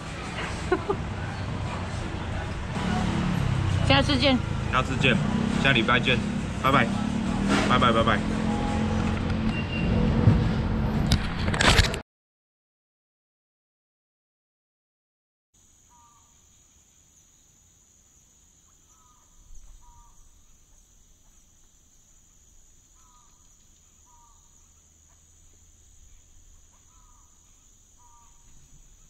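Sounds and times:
crickets chirring: 15.6s - 29.0s.

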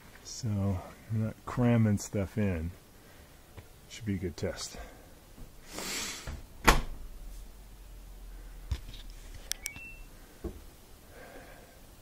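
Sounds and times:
washer door slamming shut: 6.6s - 7.0s
electronic beeps: 9.6s - 10.1s.

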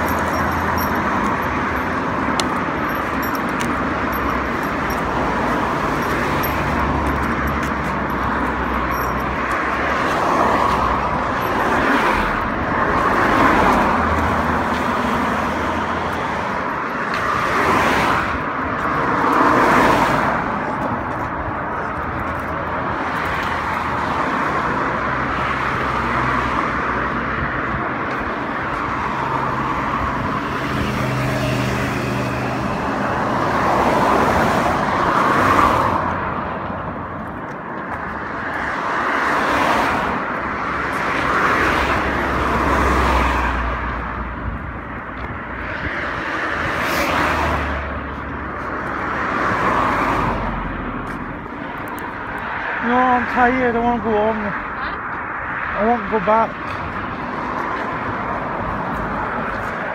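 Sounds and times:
cars passing: 0.0s - 59.9s
continuous traffic noise: 0.0s - 59.9s.

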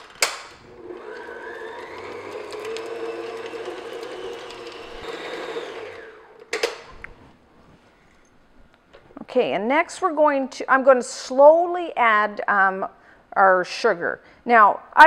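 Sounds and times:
stand mixer motor whine: 0.6s - 6.5s.

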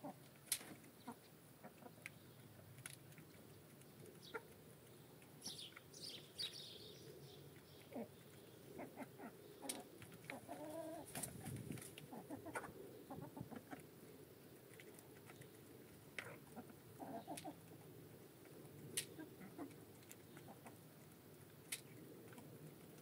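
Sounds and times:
hens clucking quietly: 0.0s - 5.9s, 7.0s - 23.0s
beaks pecking at grain: 0.0s - 23.0s.

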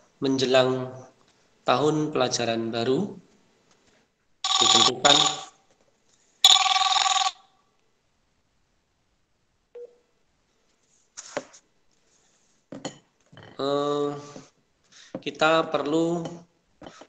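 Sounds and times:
telephone ringing: 4.4s - 5.6s, 6.4s - 7.4s.

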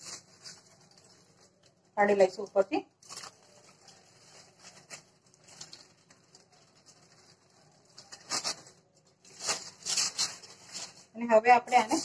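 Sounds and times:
aluminium foil crinkling: 0.0s - 12.0s.

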